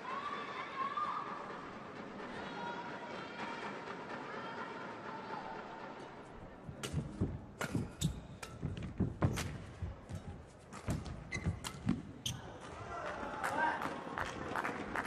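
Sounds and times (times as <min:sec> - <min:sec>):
racket striking shuttlecock: 0:06.8 - 0:09.7.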